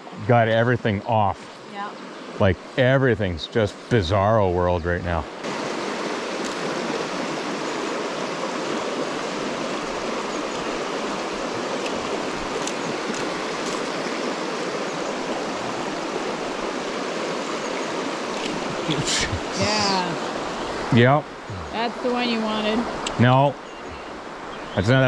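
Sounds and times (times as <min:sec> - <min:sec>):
stream rushing over rocks: 0:05.1 - 0:25.0.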